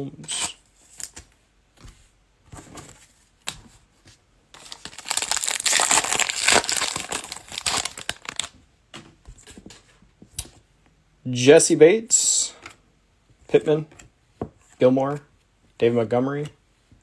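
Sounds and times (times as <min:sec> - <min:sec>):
foil wrapper tearing and crinkling: 0:04.6 - 0:08.5.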